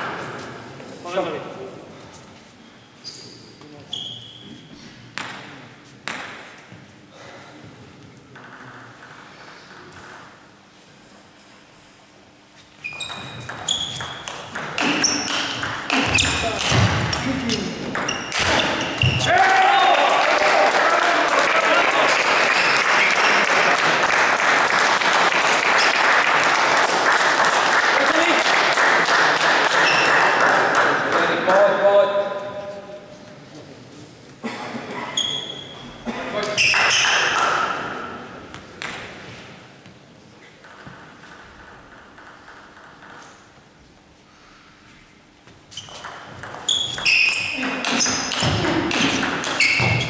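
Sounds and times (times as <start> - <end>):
audience applauding: 19.4 - 31.3.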